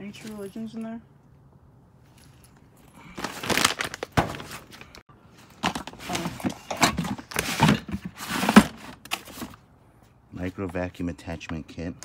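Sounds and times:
plastic bag rustling: 3.0s - 6.3s.

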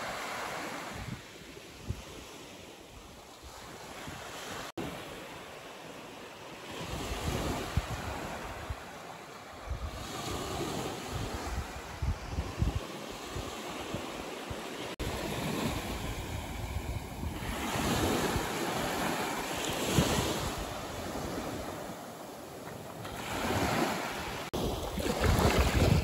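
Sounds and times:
waves washing onto shore: 0.0s - 26.0s
wind buffeting microphone: 9.6s - 26.0s.

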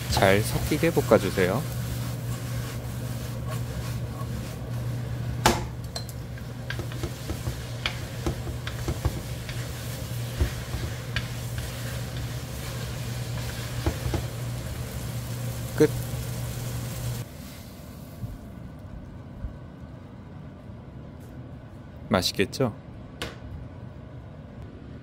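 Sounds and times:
chopsticks tapping and scraping a pan: 0.0s - 14.7s
noodles sizzling in a frying pan: 0.0s - 18.0s
steady low hum: 0.0s - 25.0s.

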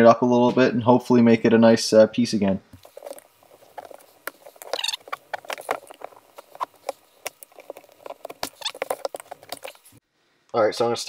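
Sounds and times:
clicks and scrapes of handled metal: 2.8s - 10.0s.

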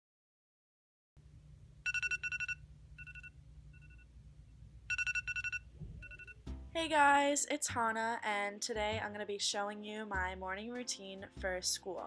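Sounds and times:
phone alarm beeping: 1.9s - 4.1s, 4.9s - 6.4s.

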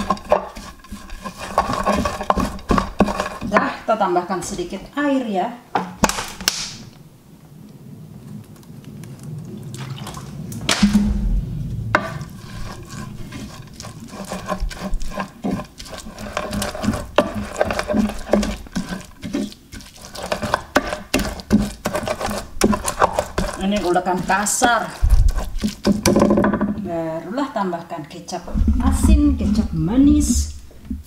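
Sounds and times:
pestle grinding in clay mortar: 0.0s - 3.8s, 12.2s - 26.8s
water pouring: 8.4s - 26.2s.

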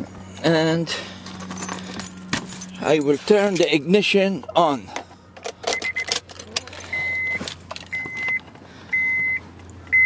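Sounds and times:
car keys jangling: 1.2s - 3.9s, 5.4s - 8.4s
high electronic beep: 6.9s - 7.4s.

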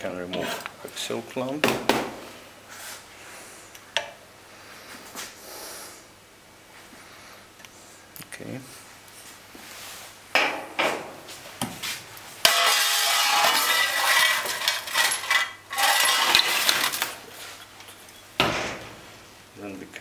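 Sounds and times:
metallic scraping and clattering: 12.4s - 19.0s.

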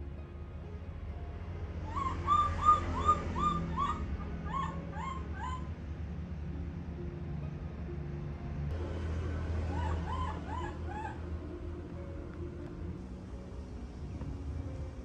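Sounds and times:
baby monkey crying: 1.9s - 5.7s, 9.7s - 11.2s.

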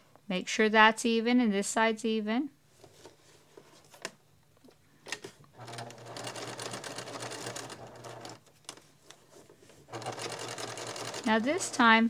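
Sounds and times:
sewing machine running: 5.6s - 8.4s, 9.9s - 12.0s.

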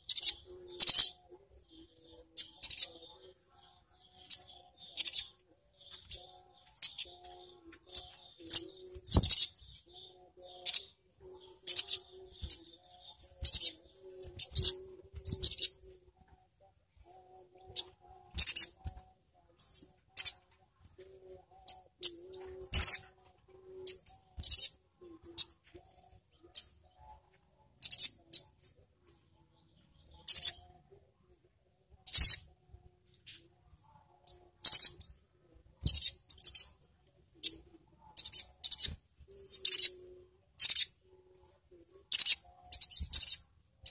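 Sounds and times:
bird chirping high-pitched: 0.0s - 16.0s, 17.0s - 28.6s, 29.6s - 30.8s, 32.0s - 32.6s, 34.2s - 35.2s, 35.8s - 36.8s, 37.4s - 41.1s, 42.1s - 43.9s.

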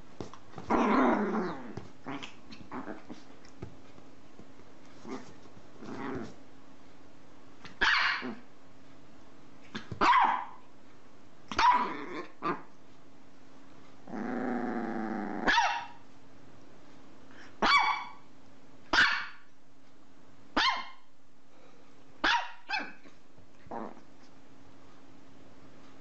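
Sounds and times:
faint steady hum: 0.0s - 26.0s
dog growling: 0.7s - 3.3s, 5.0s - 6.4s, 11.7s - 12.7s, 14.0s - 15.5s, 23.6s - 24.1s
dog barking: 7.8s - 8.3s, 10.0s - 10.6s, 15.5s - 16.0s, 17.6s - 18.2s, 18.9s - 19.4s, 20.6s - 21.0s, 22.2s - 23.0s.

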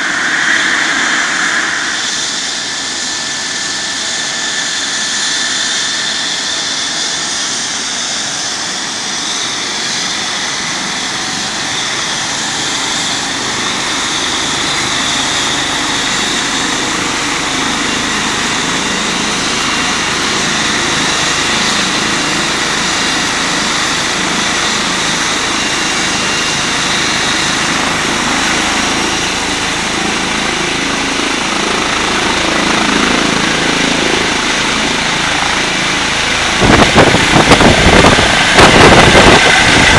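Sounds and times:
thin high whine: 0.0s - 5.2s
helicopter rotor noise: 0.0s - 39.9s
helicopter turbine whine: 0.0s - 39.9s.

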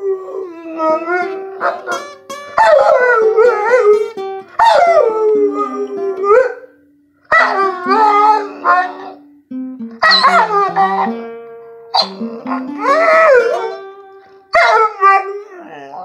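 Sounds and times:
dog howling: 0.0s - 2.0s, 2.6s - 4.0s, 7.3s - 9.2s, 10.0s - 11.2s, 12.0s - 13.9s, 14.6s - 16.0s
guitar notes being picked: 0.0s - 16.0s.

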